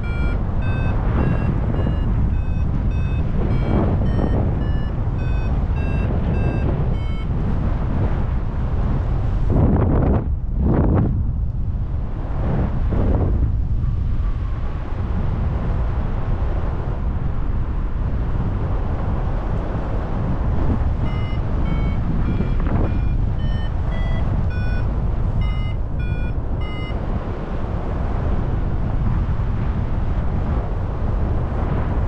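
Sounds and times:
variometer beeping: 0.0s - 7.6s, 20.6s - 27.3s
wind rushing over microphone: 0.0s - 32.0s.

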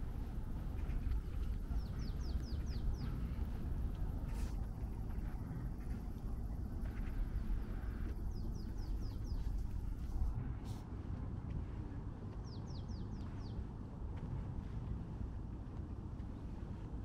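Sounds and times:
songbird chirping: 0.0s - 10.2s, 12.3s - 13.8s
low background rumble: 0.0s - 17.0s.

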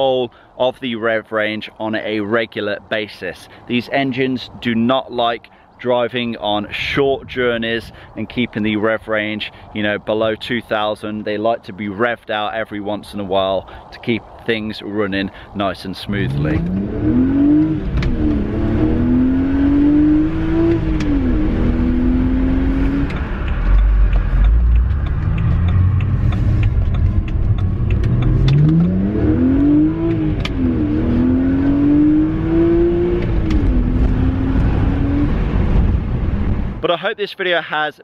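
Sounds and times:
low road rumble: 0.0s - 36.9s
car engine revving through gears: 16.0s - 36.7s.

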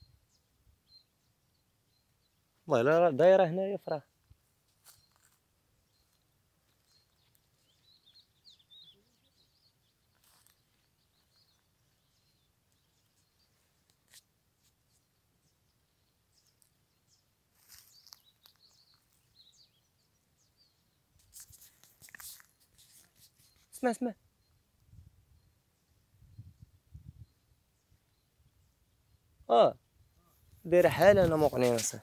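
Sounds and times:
distant goldfinch twittering: 5.8s - 13.6s.

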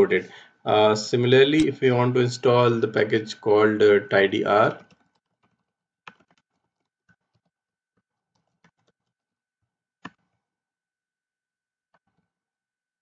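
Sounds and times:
computer keyboard typing: 4.8s - 7.6s.

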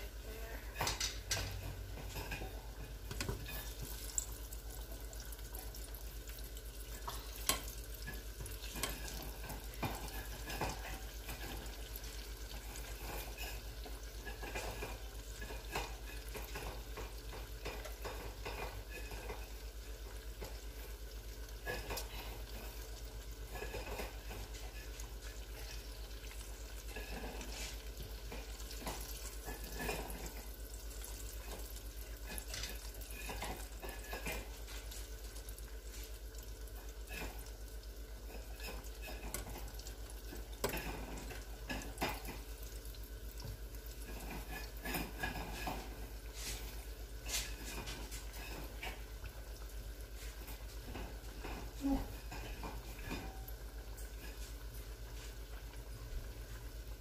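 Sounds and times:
oil sizzling: 0.0s - 57.0s.

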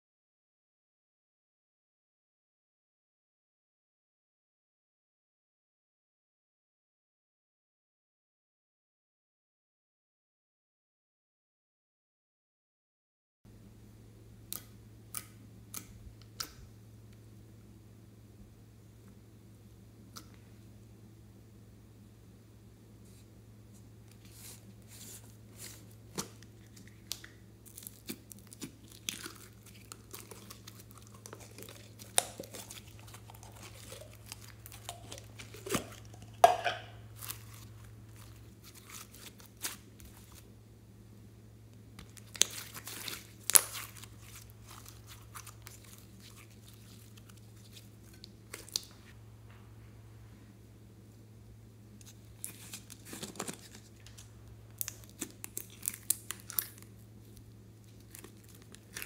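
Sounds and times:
hands squeezing sticky slime: 24.1s - 40.5s, 42.0s - 49.1s, 52.0s - 59.0s
plastic tub crinkling: 24.2s - 40.5s, 42.0s - 49.1s, 52.0s - 59.0s.

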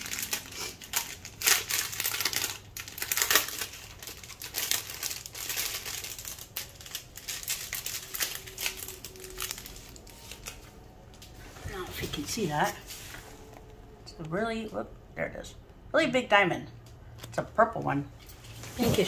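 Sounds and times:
plastic bags crinkling: 0.0s - 13.8s.

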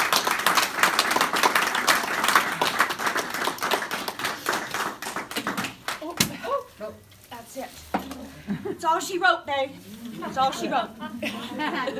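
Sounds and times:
people clapping and applauding: 0.0s - 6.3s.

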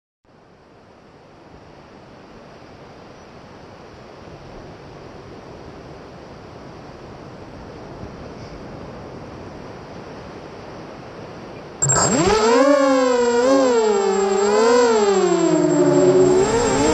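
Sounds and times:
wind: 0.2s - 16.9s
surf on a beach: 0.4s - 13.4s
drone motors whining: 11.8s - 16.9s.

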